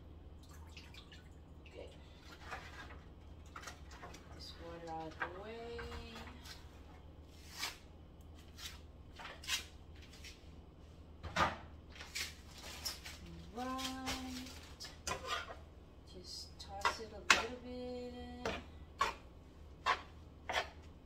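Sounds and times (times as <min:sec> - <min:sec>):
steady low hum: 0:00.0 - 0:21.0
kitchen items knocking and clattering: 0:11.2 - 0:11.7.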